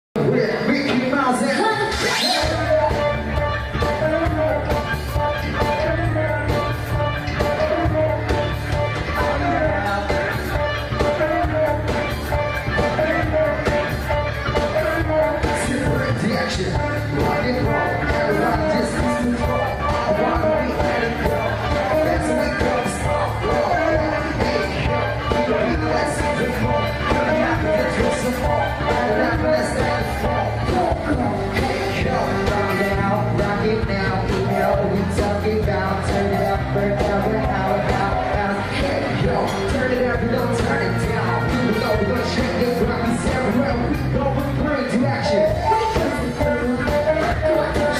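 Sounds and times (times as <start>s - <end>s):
guitar: 0.2s - 47.9s
keyboard: 0.2s - 47.9s
person singing: 1.7s - 47.9s
drums with steady beat: 2.4s - 47.9s.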